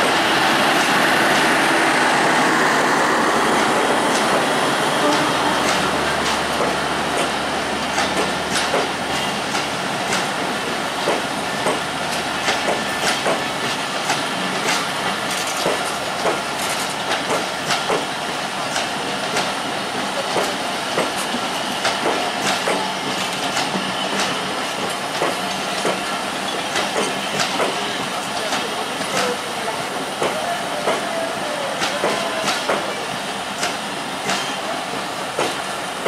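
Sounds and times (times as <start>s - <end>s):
train wheels rumbling on rails: 0.0s - 36.0s
wheels clacking over rail joints: 5.1s - 18.1s, 18.7s - 31.2s, 31.8s - 33.0s.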